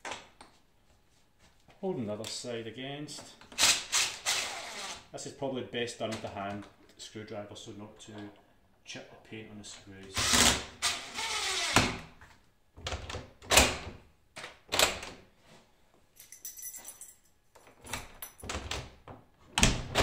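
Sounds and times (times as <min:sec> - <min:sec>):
cordless drill driving screw: 0:03.5 - 0:05.0, 0:10.2 - 0:11.9.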